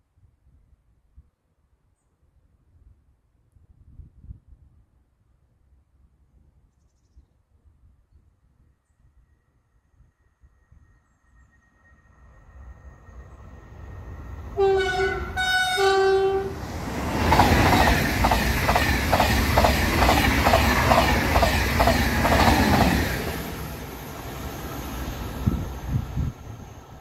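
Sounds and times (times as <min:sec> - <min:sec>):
train horn blasts: 0:14.6 - 0:16.6
train wheels clattering over rails: 0:16.8 - 0:23.9.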